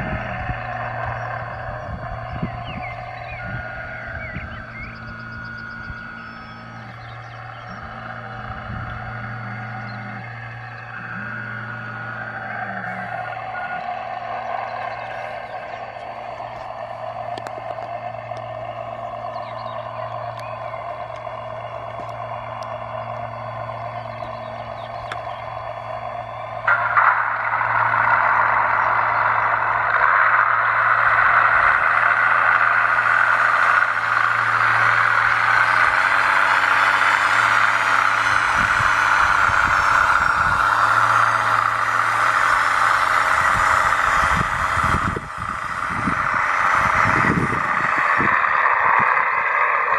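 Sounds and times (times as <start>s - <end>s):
model motor humming: 0.0s - 49.9s
faint clicks: 12.5s - 24.2s.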